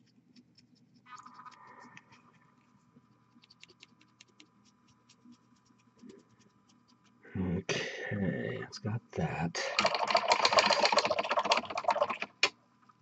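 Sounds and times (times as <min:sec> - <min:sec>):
paintbrush scratching and clicking: 0:00.0 - 0:07.2, 0:09.8 - 0:12.5
man speaking: 0:07.3 - 0:09.8.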